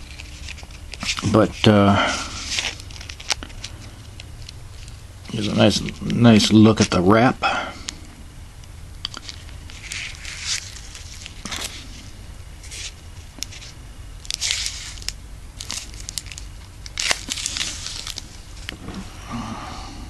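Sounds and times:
plastic wrapping crinkling: 0.0 - 7.0, 9.0 - 19.1.

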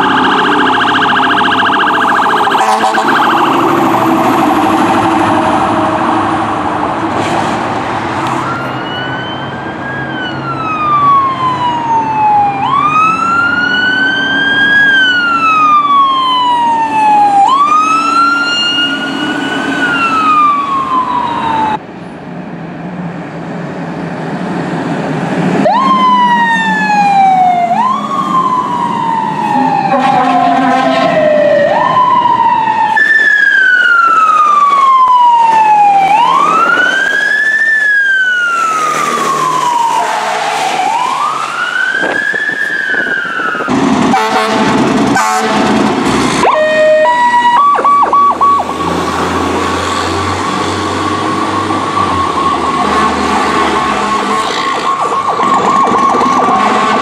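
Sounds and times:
wailing siren: 0.0 - 7.1, 8.2 - 21.8, 25.6 - 57.0
diesel truck engine: 0.0 - 57.0
horn blasts: 2.2 - 4.0, 29.5 - 31.2, 40.0 - 40.6, 44.1 - 45.8, 56.5 - 57.0.

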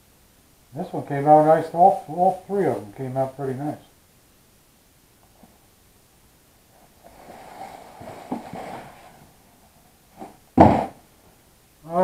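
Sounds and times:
cardboard box scraping on wood: 7.0 - 9.3
box thumping down: 8.0 - 9.2, 10.2 - 11.0.

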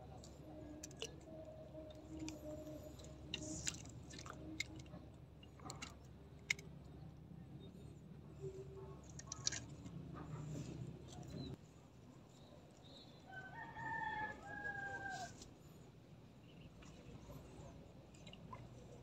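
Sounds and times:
faint rooster crowing: 13.2 - 15.5.

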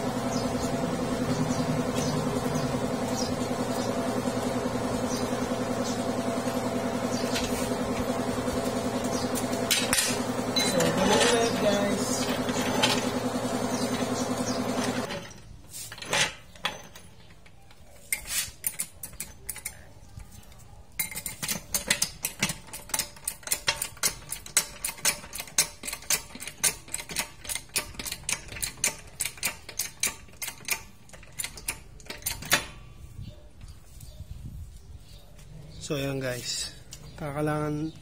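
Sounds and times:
steady hum: 0.0 - 15.1
hand tools clicking metallically: 8.1 - 14.1, 16.6 - 32.7.

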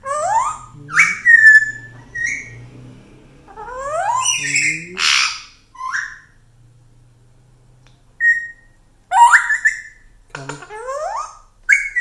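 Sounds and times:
parrot squawk: 0.0 - 2.6, 3.5 - 6.4, 8.2 - 10.1, 10.7 - 12.0
parrot whistling: 0.0 - 2.6, 3.5 - 6.4, 8.2 - 10.0.

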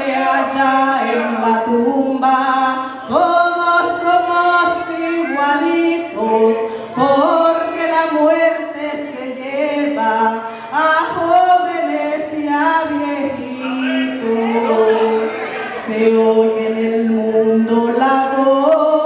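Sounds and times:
woman singing into a microphone: 0.0 - 19.0.

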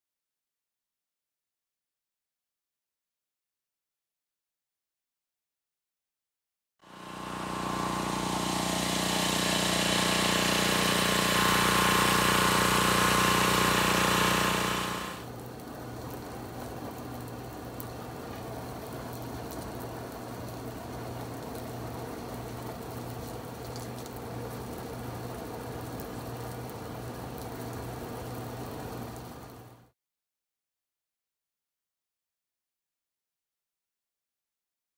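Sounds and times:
blower hum: 6.8 - 29.8
insulation blower rushing hiss: 6.9 - 15.2.

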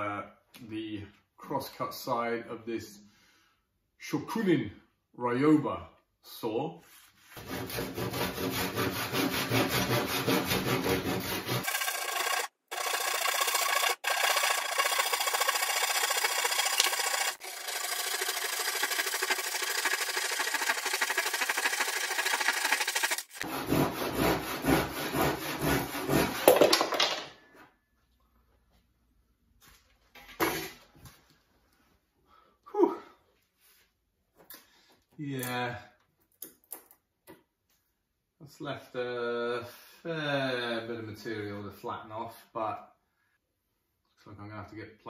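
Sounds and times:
hand saw cutting wood: 7.3 - 26.7.

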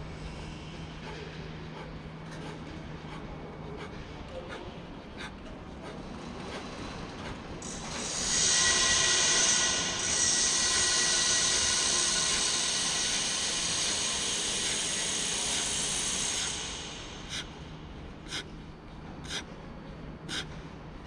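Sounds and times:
man puffing sharp breaths: 0.4 - 8.3, 12.2 - 19.5, 20.2 - 20.6
loud steady hiss: 7.8 - 17.7.

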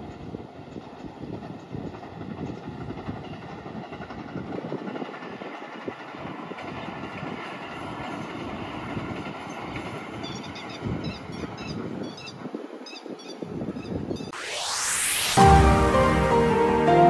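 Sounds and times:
distant train wheels rumbling on rails: 0.0 - 13.3.

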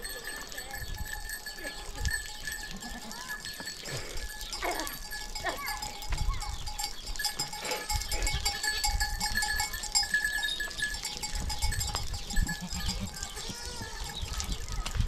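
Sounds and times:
hooves shuffling on ground: 0.0 - 15.0
goats bleating: 1.4 - 5.9, 7.6 - 9.4, 12.3 - 14.9.

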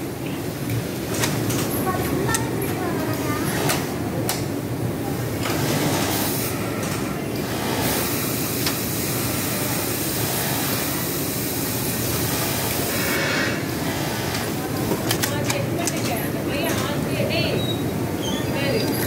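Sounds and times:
sewing machine running: 5.4 - 15.3.

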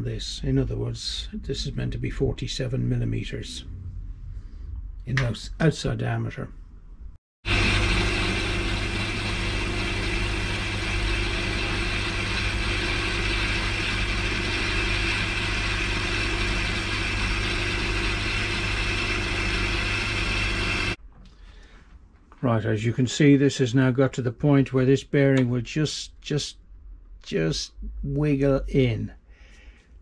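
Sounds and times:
metal lathe humming: 7.5 - 21.0.

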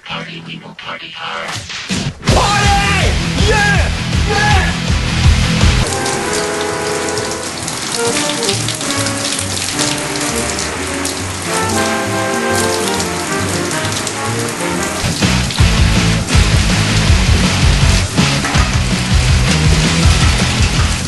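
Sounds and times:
background music with held notes: 2.4 - 21.0
shower water spraying: 5.0 - 21.0.

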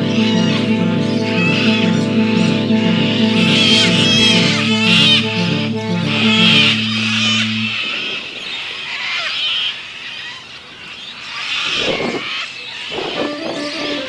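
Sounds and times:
low held music chord: 0.0 - 8.2
high chirps: 0.0 - 8.3.

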